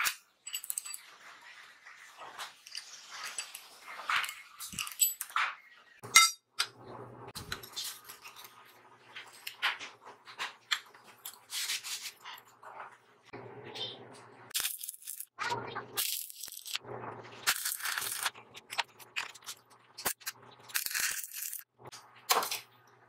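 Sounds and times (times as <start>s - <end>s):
steel parts clinking: 0.0s - 1.1s, 2.6s - 6.5s.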